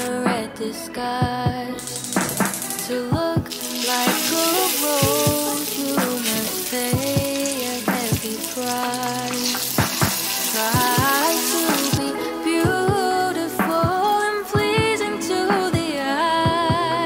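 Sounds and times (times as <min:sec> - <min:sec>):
background music: 0:00.0 - 0:17.0
butter sizzling in a frying pan: 0:01.8 - 0:12.1.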